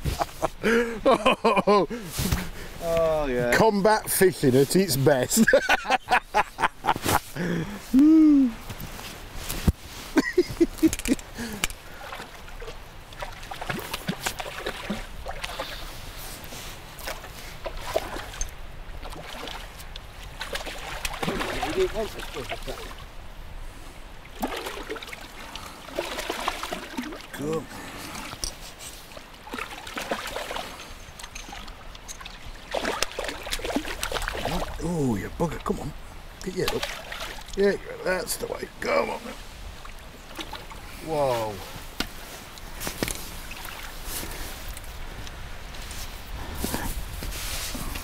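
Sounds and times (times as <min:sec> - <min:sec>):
fish splashing in water: 0:11.9 - 0:15.9, 0:24.3 - 0:27.3, 0:29.4 - 0:30.8, 0:31.5 - 0:34.8, 0:36.7 - 0:37.6.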